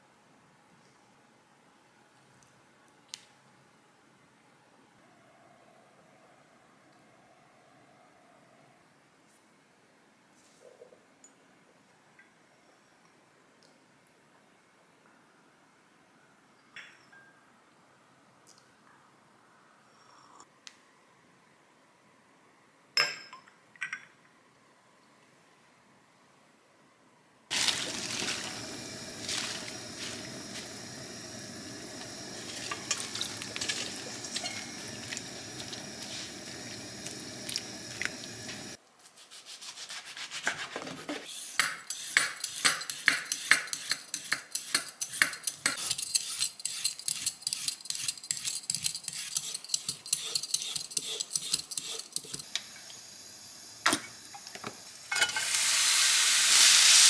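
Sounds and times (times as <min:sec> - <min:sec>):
steady even noise: 0:27.5 - 0:38.8
peeler scraping carrot: 0:41.3 - 0:52.5.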